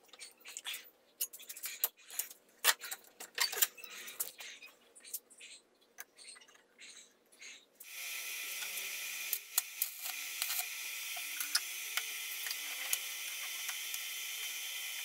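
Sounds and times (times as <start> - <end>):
power grinder grinding steel: 7.8 - 15.0.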